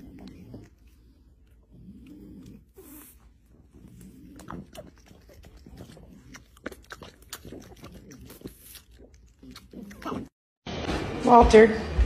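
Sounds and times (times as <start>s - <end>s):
puppy chewing with wet smacking: 4.3s - 10.3s.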